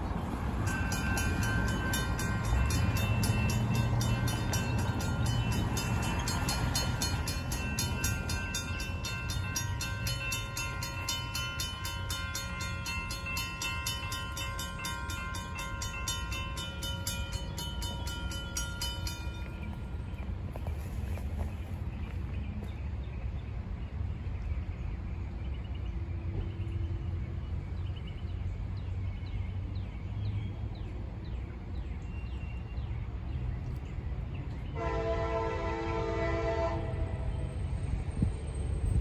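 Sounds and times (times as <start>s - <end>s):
road traffic rumbling: 0.0s - 39.0s
crossing warning bell ringing: 0.2s - 21.0s.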